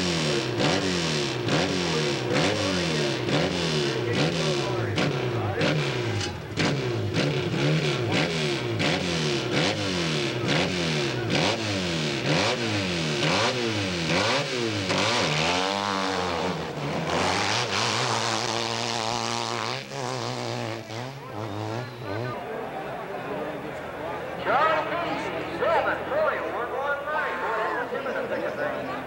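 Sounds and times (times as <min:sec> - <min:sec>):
motorcycle engine revving: 0:00.0 - 0:22.5.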